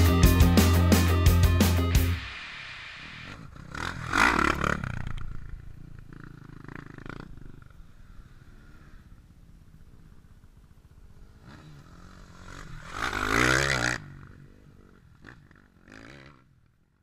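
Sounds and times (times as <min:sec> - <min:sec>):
dirt bike engine revving: 0:03.1 - 0:07.5, 0:11.1 - 0:16.5.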